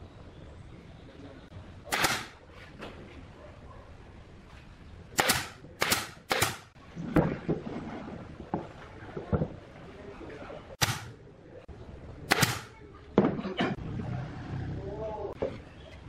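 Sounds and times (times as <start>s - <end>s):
nail gun firing into wood: 1.9s - 2.4s, 5.2s - 6.7s, 10.8s - 11.1s, 12.3s - 12.7s.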